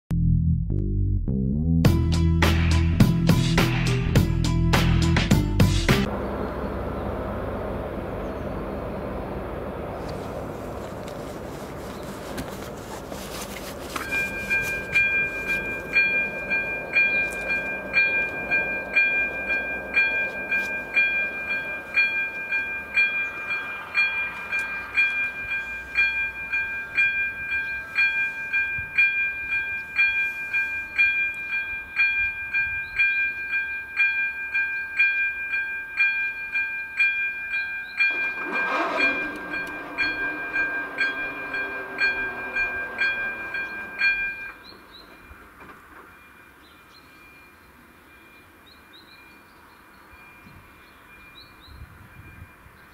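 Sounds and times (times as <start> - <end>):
electronic warning bell dinging: 13.9 - 45.5.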